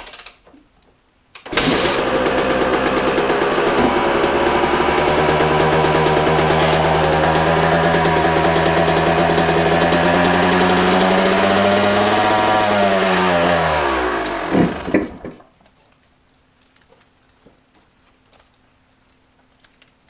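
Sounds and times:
dirt bike engine running: 1.5 - 15.4
engine pops: 1.5 - 15.5.

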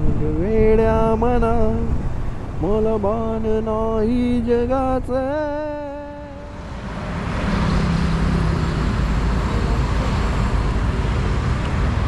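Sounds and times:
city street traffic: 0.0 - 12.0
vehicle low hum: 0.0 - 12.0.

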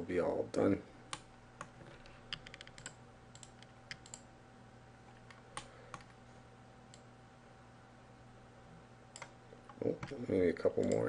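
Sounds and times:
faint electrical hum: 0.0 - 11.0
computer mouse clicks: 2.3 - 4.2, 10.8 - 11.0.

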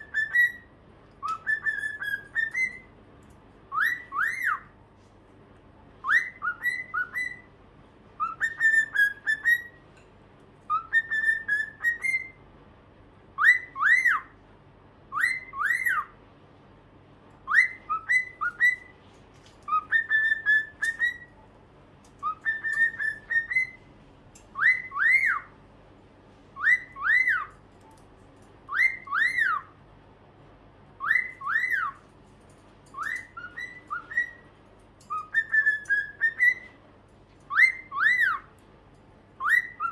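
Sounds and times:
cockatiel whistling: 0.0 - 2.9, 3.7 - 4.7, 6.0 - 7.5, 8.2 - 9.8, 10.7 - 12.4, 13.4 - 14.4, 15.1 - 16.2, 17.4 - 18.9, 19.7 - 21.4, 22.2 - 23.9, 24.5 - 25.5, 26.6 - 27.6, 28.7 - 29.8, 31.0 - 32.0, 32.9 - 34.5, 35.1 - 36.8, 37.5 - 38.5, 39.4 - 39.9.

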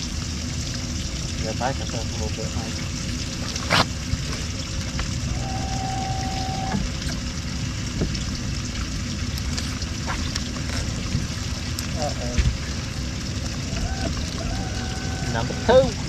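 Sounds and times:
water churning: 0.0 - 16.0
electric motor whine: 5.3 - 6.9.

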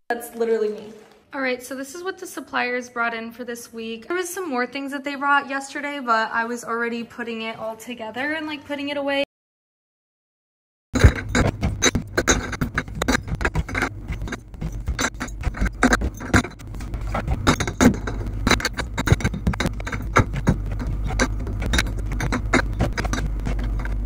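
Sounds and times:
steady low hum: 11.0 - 24.0.

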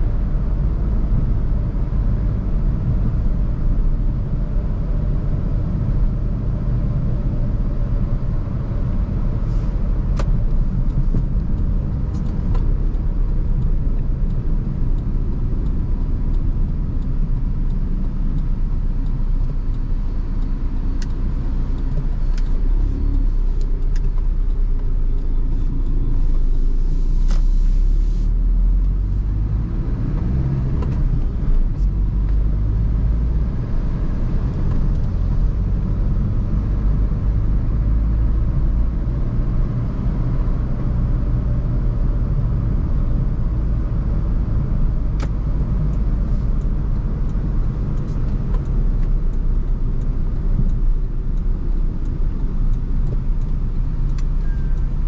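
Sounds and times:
car engine and road noise: 0.0 - 55.0
faint ticks: 10.1 - 27.5, 45.2 - 55.0
brief hiss: 26.7 - 28.3.

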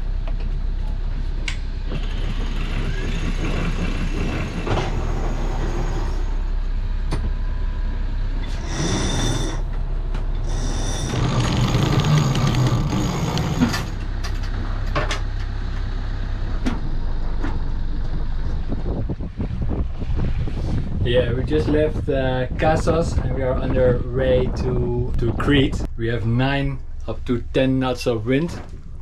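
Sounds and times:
wind and hull noise: 0.0 - 29.0
sheet winch whining: 1.9 - 6.5, 8.4 - 14.4.

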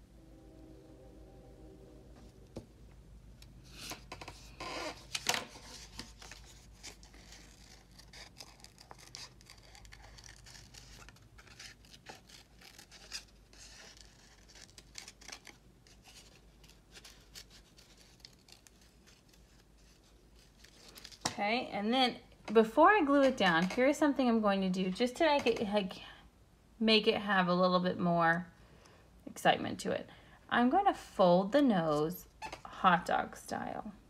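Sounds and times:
paper rustling: 3.7 - 21.4
scissors snipping paper: 5.2 - 19.5.

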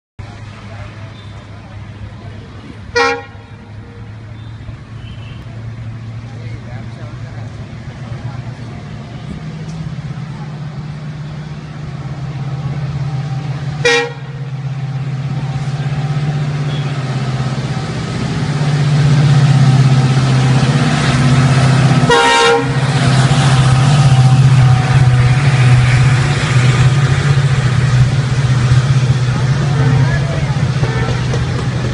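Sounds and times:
diesel locomotive engine drone: 0.2 - 31.9
locomotive horn blasts: 2.9 - 3.8, 13.8 - 14.6, 16.6 - 17.1, 22.0 - 23.0, 29.6 - 31.6
train wheels rolling: 4.0 - 31.9.

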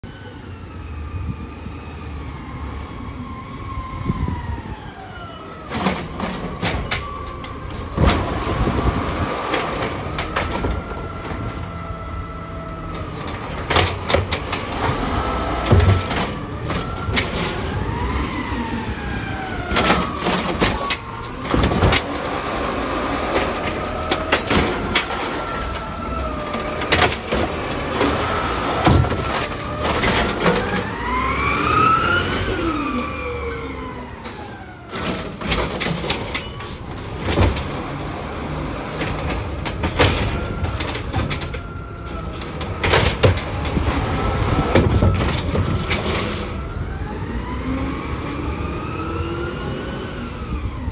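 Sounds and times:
garbage truck diesel engine: 0.0 - 50.9
plastic cart banging and clattering: 13.0 - 15.0, 15.6 - 17.6, 23.2 - 28.2, 37.0 - 37.9, 38.9 - 41.7, 42.3 - 46.5.

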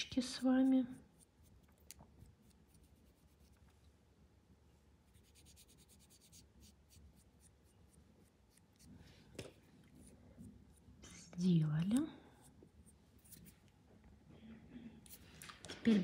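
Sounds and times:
applicator scratching on nail: 5.2 - 9.0.

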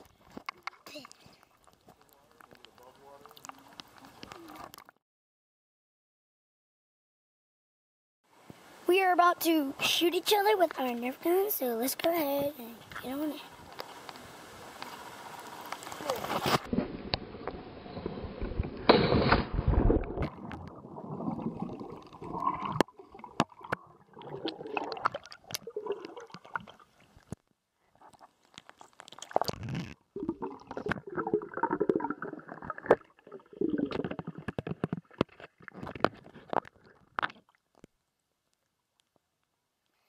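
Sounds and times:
pool water sloshing and gurgling: 19.2 - 27.3, 29.1 - 37.5.

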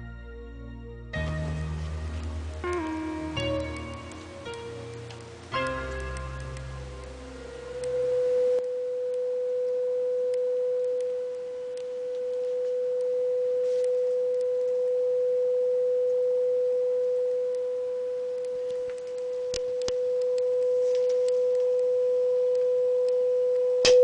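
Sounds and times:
steady sine-wave test tone: 0.0 - 24.0
clicks: 3.6 - 7.2, 18.3 - 21.9.

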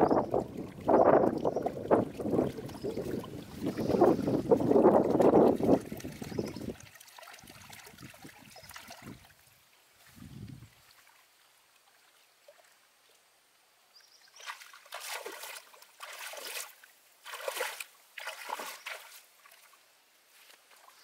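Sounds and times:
water splashing and sloshing: 0.0 - 13.3, 14.2 - 21.0.

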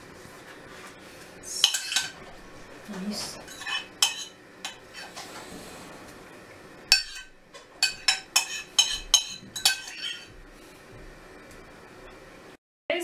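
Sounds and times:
utensil clinking on ceramic bowl: 3.5 - 4.8, 6.9 - 10.3.

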